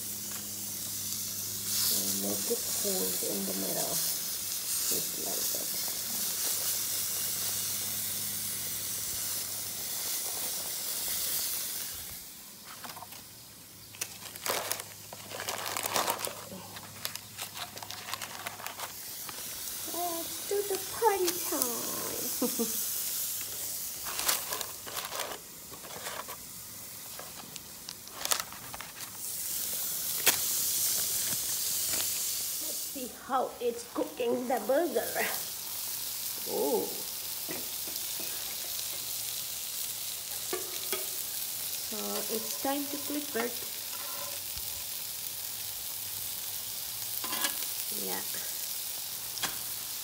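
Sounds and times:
meat sizzling on a grill: 0.0s - 50.0s
foil tray and paper crinkling: 12.6s - 13.3s, 13.9s - 21.8s, 23.5s - 32.4s, 41.3s - 44.4s.

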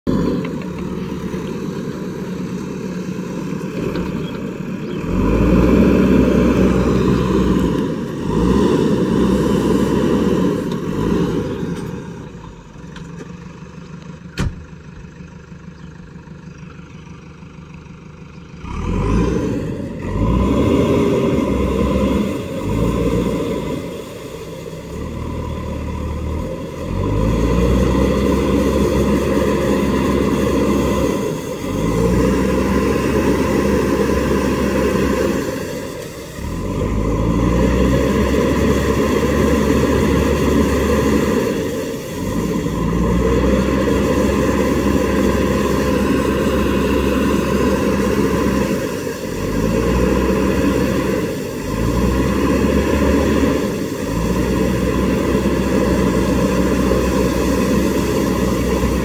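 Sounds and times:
diesel engine surging: 0.0s - 59.0s
wheels splashing water: 20.1s - 59.0s.

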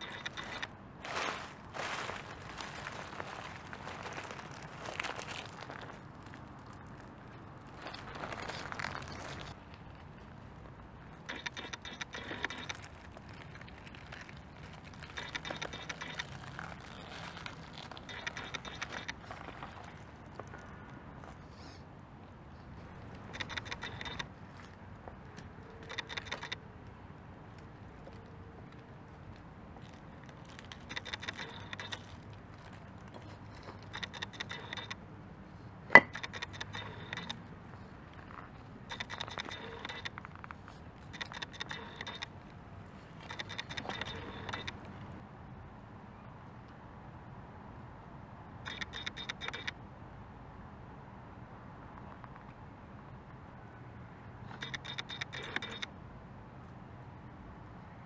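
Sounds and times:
tyres crunching leaves and gravel: 0.0s - 21.7s
rc car crawling over stones: 11.2s - 20.0s, 41.1s - 42.3s.

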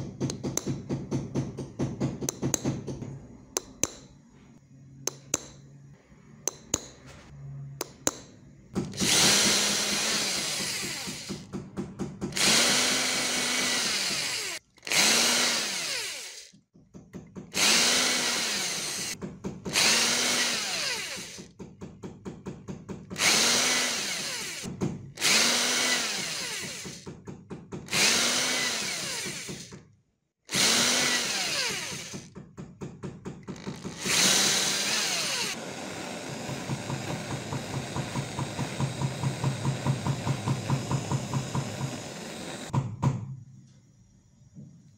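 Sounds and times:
electric drill boring through brass: 8.9s - 11.4s, 12.3s - 16.6s, 17.6s - 21.5s, 23.2s - 27.0s, 27.9s - 29.8s, 30.5s - 32.3s, 33.5s - 42.7s.

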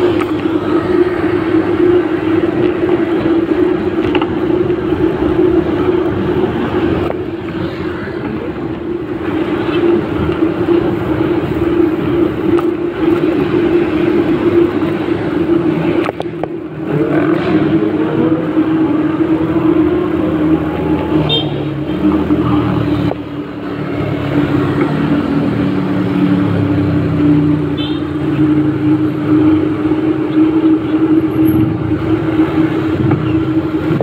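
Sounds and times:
motor vehicle engine hum: 0.0s - 34.0s
road noise: 0.0s - 34.0s
wind noise: 28.3s - 34.0s.

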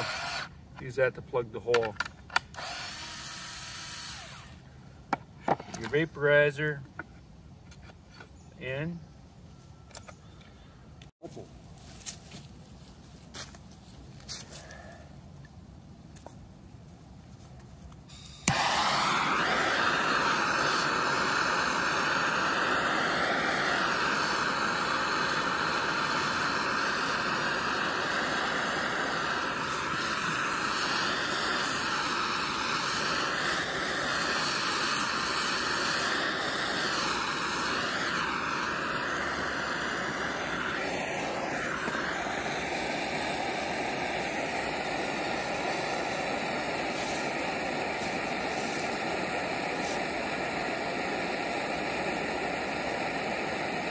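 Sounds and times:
gas torch hissing: 0.0s - 1.0s, 2.6s - 4.6s, 18.0s - 53.9s.

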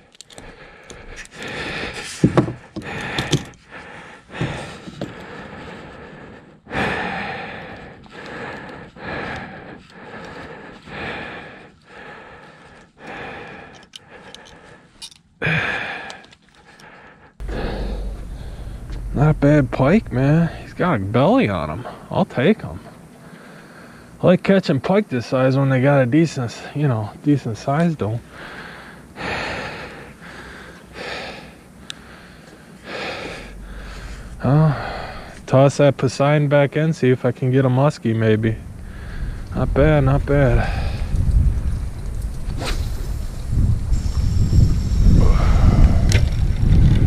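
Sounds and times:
man breathing hard: 0.0s - 20.9s, 23.2s - 24.2s, 28.2s - 35.6s, 38.7s - 39.6s, 40.5s - 41.6s, 44.1s - 46.4s
steady low rumble: 16.8s - 24.1s, 28.2s - 36.7s, 38.3s - 47.0s.

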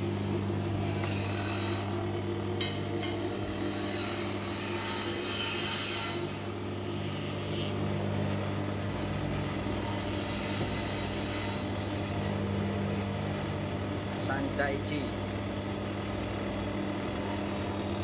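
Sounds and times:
oil expeller humming: 0.0s - 5.2s, 6.2s - 18.0s.

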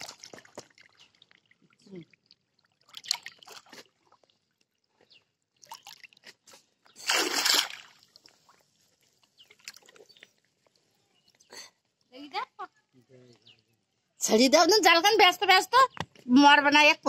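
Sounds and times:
pond water sloshing and splashing: 0.0s - 10.8s
loud splash: 7.0s - 8.0s.

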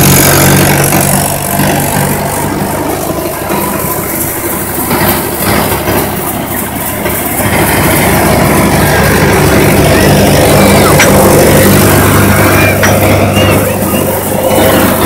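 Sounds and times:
thresher drone and clatter: 0.0s - 15.0s
tractor diesel engine under load: 0.0s - 15.0s.

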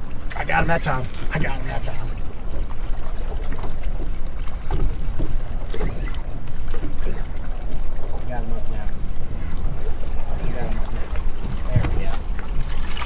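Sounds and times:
water lapping against boat hull: 0.0s - 13.0s.

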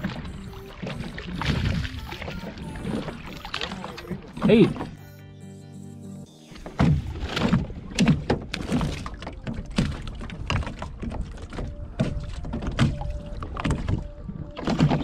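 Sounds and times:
fish handling knocks and rustles: 6.7s - 14.0s.

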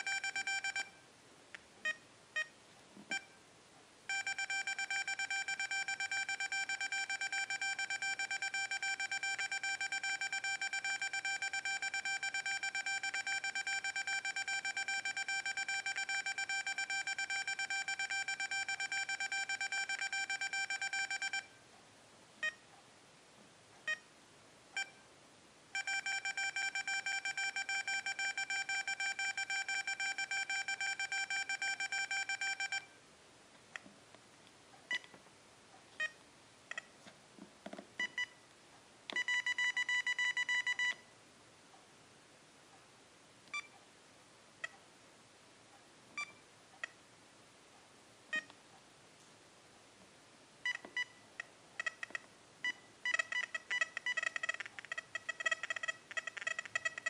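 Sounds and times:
metal detector steady tone: 0.0s - 1.0s, 4.1s - 21.5s, 25.8s - 33.0s
short beeps: 0.0s - 1.0s, 4.1s - 21.5s, 25.8s - 33.0s.

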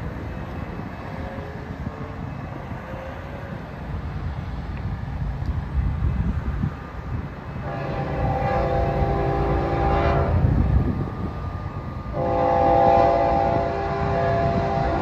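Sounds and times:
locomotive horn blasts: 7.6s - 10.6s, 12.1s - 15.0s.

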